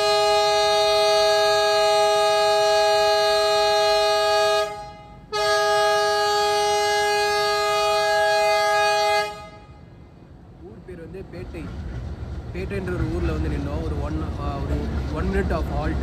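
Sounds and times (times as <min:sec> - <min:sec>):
locomotive horn blasts: 0:00.0 - 0:10.1.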